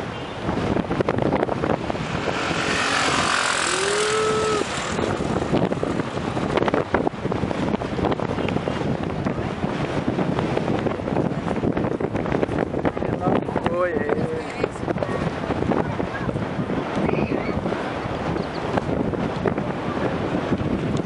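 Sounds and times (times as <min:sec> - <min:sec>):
wind buffeting microphone: 0:00.0 - 0:21.0
distant jet engine: 0:01.3 - 0:07.6.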